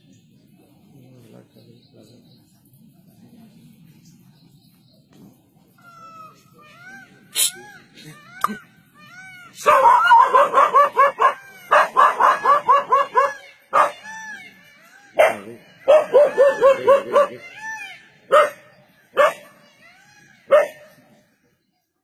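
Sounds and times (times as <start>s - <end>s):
dog barking and yipping: 9.6s - 14.0s, 15.2s - 17.5s, 18.3s - 18.6s, 19.2s - 19.5s, 20.5s - 20.8s.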